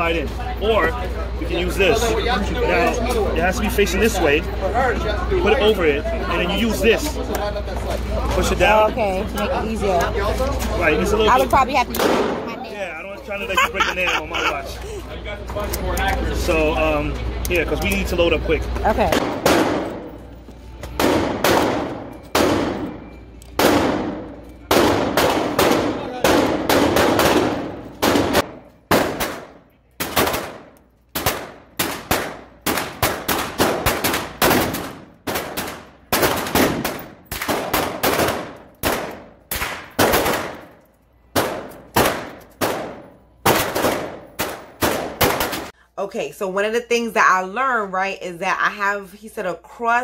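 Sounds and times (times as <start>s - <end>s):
pistol shots with echo: 11.9s - 12.5s, 19.1s - 20.1s, 21.0s - 45.7s.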